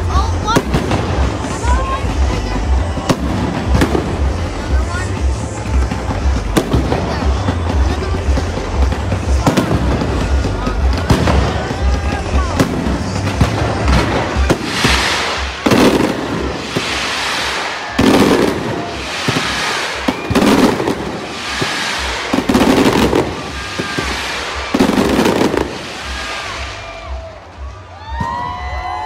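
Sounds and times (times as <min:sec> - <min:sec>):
fireworks crackling and sizzling: 0:00.0 - 0:29.0
firework shells booming: 0:05.3 - 0:27.3.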